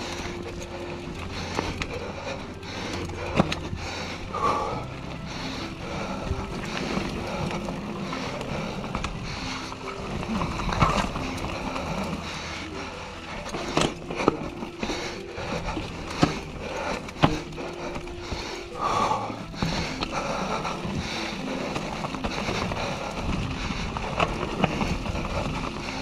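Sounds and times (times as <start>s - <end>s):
background music: 0.0s - 26.0s
bike rattling: 0.0s - 26.0s
bike tyres crunching over stones: 0.0s - 26.0s
bike knocking on rocks: 0.5s - 3.7s, 13.4s - 26.0s.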